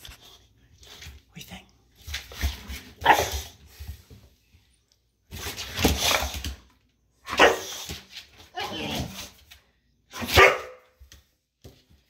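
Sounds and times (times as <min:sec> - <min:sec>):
dog barking and vocalizing: 0:07.3 - 0:07.8, 0:10.1 - 0:10.8.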